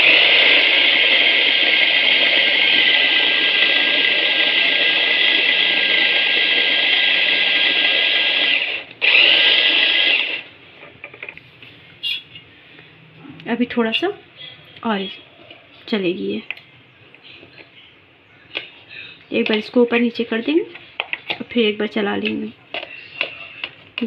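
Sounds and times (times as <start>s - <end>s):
electric chopper motor whining: 0.0s - 10.5s.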